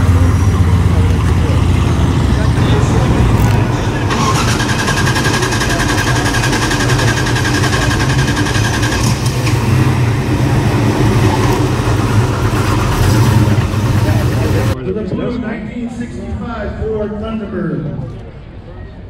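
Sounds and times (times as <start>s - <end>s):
car engine rumbling: 0.0s - 14.8s.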